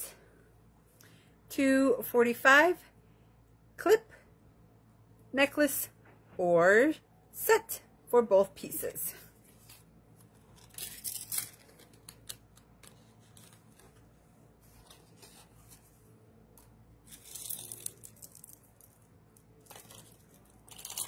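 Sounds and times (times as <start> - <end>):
packaging crinkling and rustling: 9.6 - 14.1, 17.0 - 21.0.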